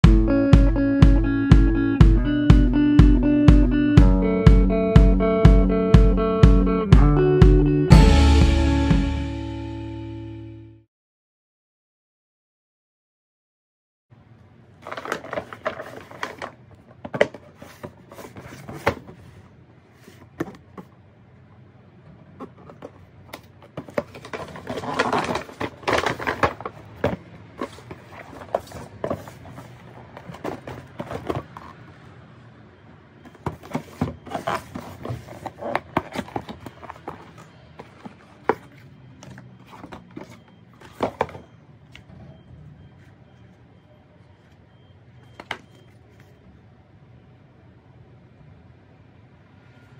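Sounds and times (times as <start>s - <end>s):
scraping and rustling of boxes: 14.8s - 21.0s, 22.2s - 32.1s, 33.3s - 42.1s.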